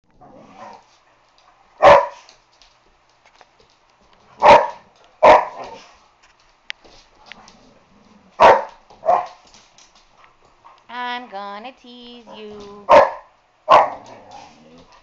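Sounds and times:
dog barking: 1.8 - 2.2, 4.4 - 5.8, 8.4 - 9.4, 12.9 - 14.1.

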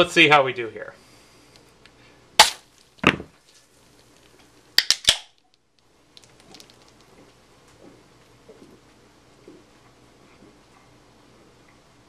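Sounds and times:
knife puncturing beer can: 2.4 - 2.6.

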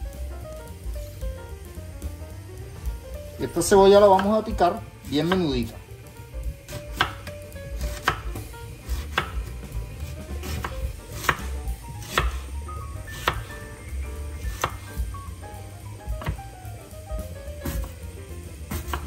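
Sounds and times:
knife chopping onion: 5.2 - 5.8, 6.6 - 12.5, 13.1 - 13.6, 14.4 - 15.1, 16.2 - 16.4, 17.6 - 18.0, 18.7 - 19.0.

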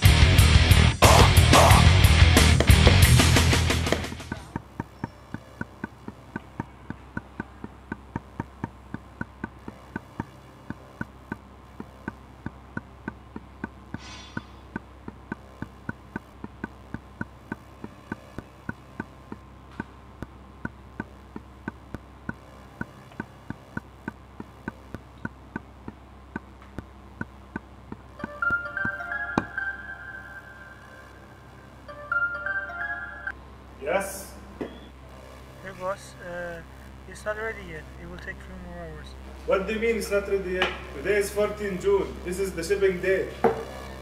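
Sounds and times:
low steady hum: 0.0 - 44.0
steady ticking: 0.6 - 29.4.

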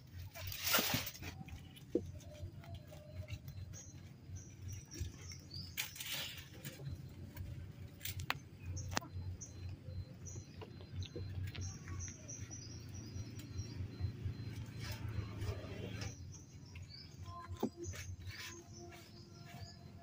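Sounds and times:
leaves rustling: 0.2 - 1.9, 4.7 - 8.2.

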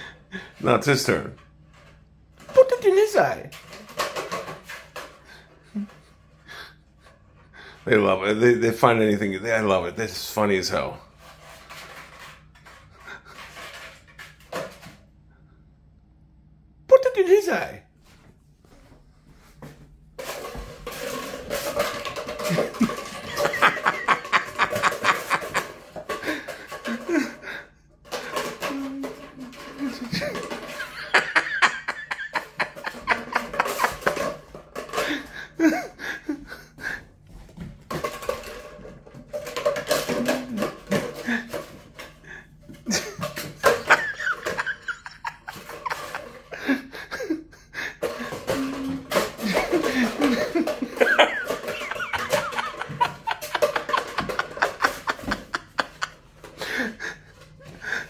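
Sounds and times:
person chuckling and laughing: 5.4 - 6.7, 21.2 - 37.2, 40.1 - 58.0.

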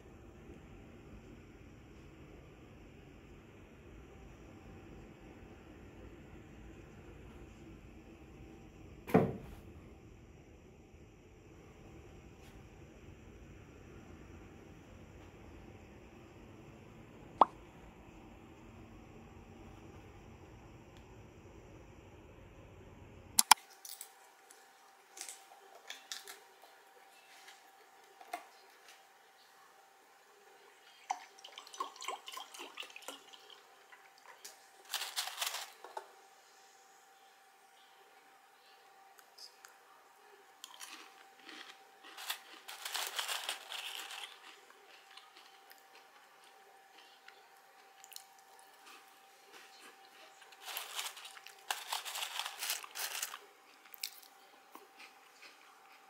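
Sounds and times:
faint steady hum: 0.0 - 56.0
cookie crunching: 31.7 - 36.1, 40.6 - 56.0.

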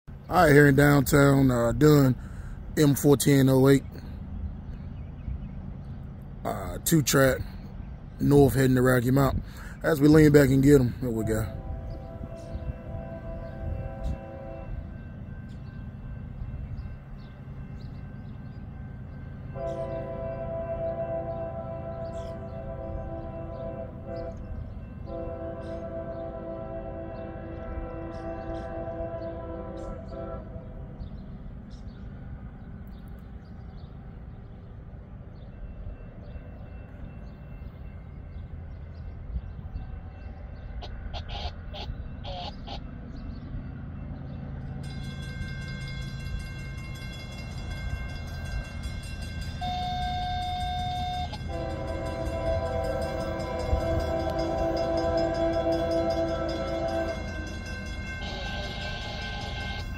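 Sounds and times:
locomotive rumble: 0.1 - 59.9
locomotive air horn chord: 10.8 - 16.0, 19.4 - 31.2, 44.8 - 59.9.

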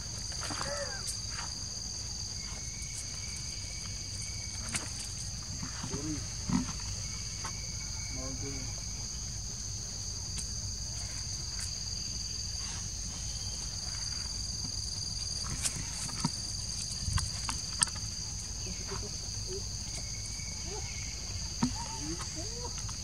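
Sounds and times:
insects chirring: 0.0 - 23.0
rustling: 12.6 - 20.2.

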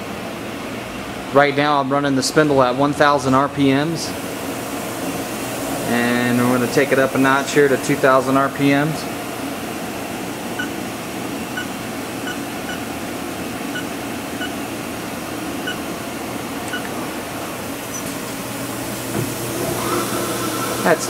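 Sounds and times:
machine spindle whirring: 16.6 - 21.0.

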